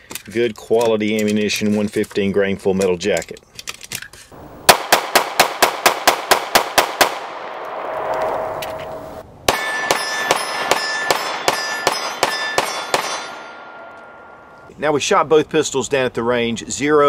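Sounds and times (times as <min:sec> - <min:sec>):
pistol shots: 0:04.7 - 0:07.9, 0:09.5 - 0:14.0
metallic ringing: 0:07.7 - 0:14.7.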